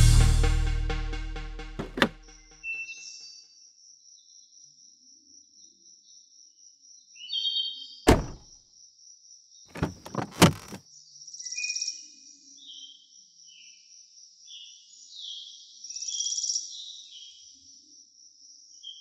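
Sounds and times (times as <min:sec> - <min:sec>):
car doors thunking shut: 0:01.8 - 0:02.2, 0:08.1 - 0:08.4, 0:09.7 - 0:10.8.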